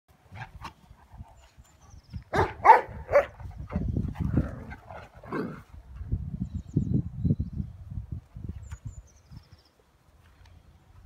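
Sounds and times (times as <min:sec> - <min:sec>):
rough low dog noises: 0:00.1 - 0:06.4
dog barking sharply: 0:02.4 - 0:03.3.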